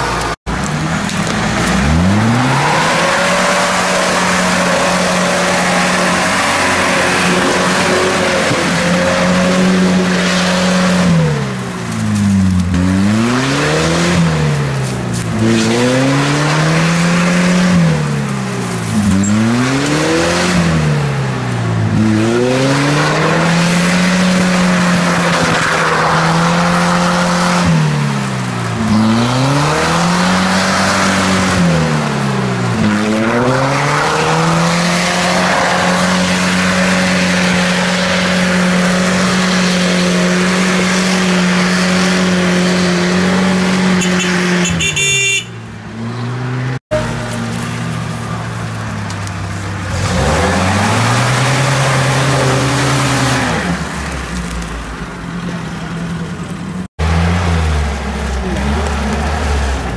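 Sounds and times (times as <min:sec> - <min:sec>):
wheels churning mud: 0:00.0 - 0:44.6, 0:46.5 - 0:59.9
engine revving hard: 0:01.5 - 0:11.6, 0:12.7 - 0:14.6, 0:15.4 - 0:18.1, 0:21.9 - 0:28.2, 0:28.8 - 0:45.1, 0:49.9 - 0:53.9.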